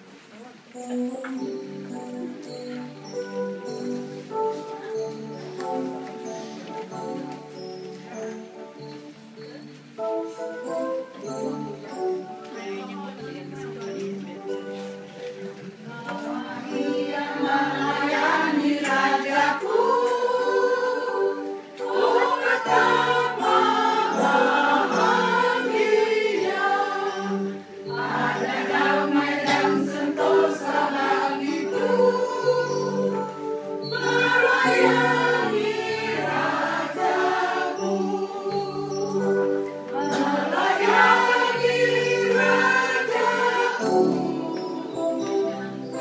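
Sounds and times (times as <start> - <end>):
choir of women singing: 15.9 - 46.0.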